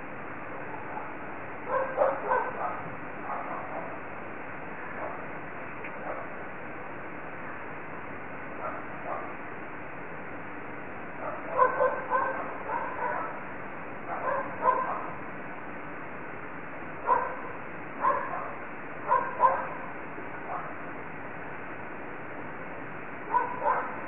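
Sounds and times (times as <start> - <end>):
microphone hiss: 0.0 - 24.0
animal barking: 0.6 - 4.0, 4.9 - 5.3, 5.9 - 6.4, 8.6 - 9.4, 11.2 - 15.2, 17.0 - 20.8, 23.3 - 24.0.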